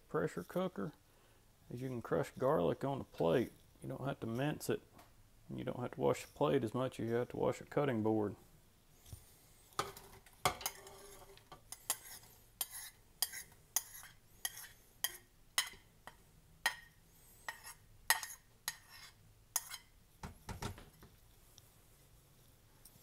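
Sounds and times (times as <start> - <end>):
metal spoon scraping and tapping pot: 9.7 - 20.0.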